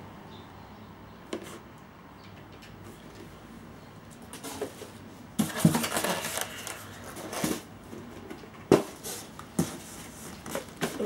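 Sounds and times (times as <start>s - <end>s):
packaging scraping and rustling: 4.3s - 11.0s.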